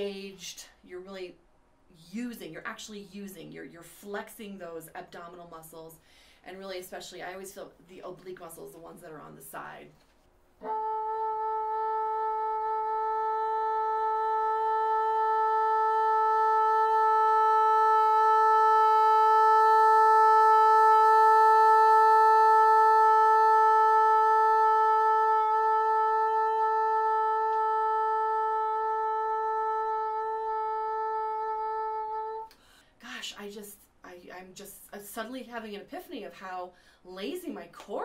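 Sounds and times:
bassoon holding a long note: 10.6 - 32.5.

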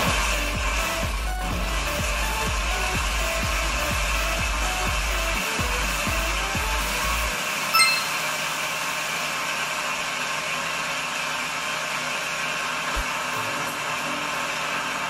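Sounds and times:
blender running: 0.0 - 7.7, 8.3 - 15.0
bright ringing clink: 7.8 - 8.5.

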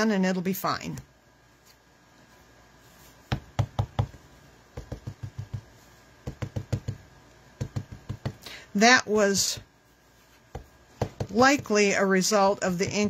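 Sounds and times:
ink pad tapping on stamp: 3.3 - 4.2, 4.8 - 7.0, 7.6 - 8.4, 10.5 - 11.8.

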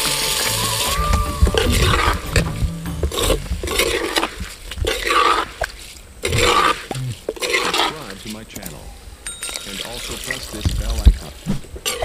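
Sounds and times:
spoon scraping in clay pot: 6.2 - 8.1.

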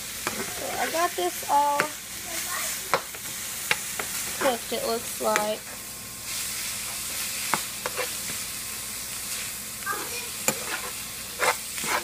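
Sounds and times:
meat sizzling in a frying pan: 0.0 - 12.0.

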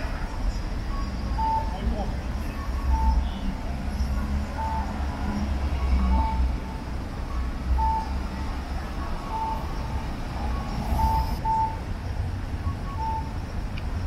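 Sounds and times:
city street traffic: 0.0 - 14.0
short electronic beeps: 0.9 - 5.0, 5.7 - 8.6, 9.2 - 11.8, 12.6 - 13.4.

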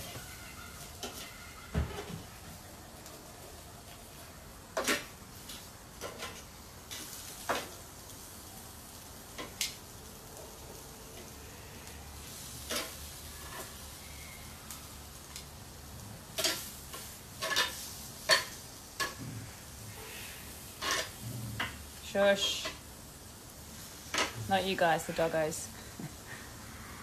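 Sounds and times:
vegetables sizzling on a grill: 0.0 - 27.0
metal tongs clicking on grill: 9.3 - 9.9, 12.6 - 13.8, 14.7 - 15.5, 16.3 - 19.2.

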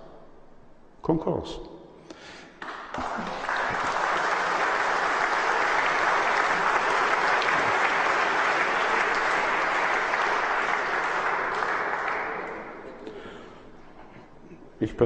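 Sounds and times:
audience applauding: 2.6 - 13.8.

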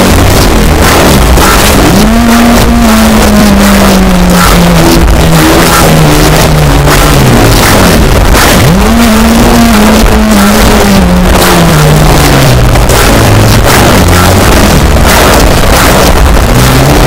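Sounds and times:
extreme metal music: 0.0 - 17.0.

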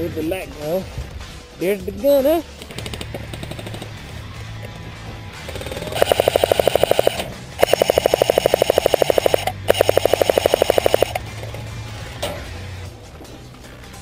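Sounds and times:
airsoft gun full-auto bursts: 5.5 - 11.2.

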